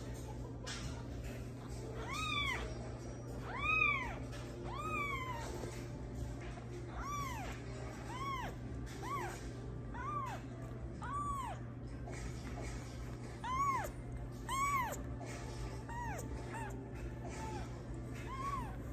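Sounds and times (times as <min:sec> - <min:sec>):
kitten meowing: 0:02.0 - 0:02.8, 0:03.4 - 0:05.7, 0:06.9 - 0:11.7, 0:13.4 - 0:15.1, 0:15.9 - 0:18.9.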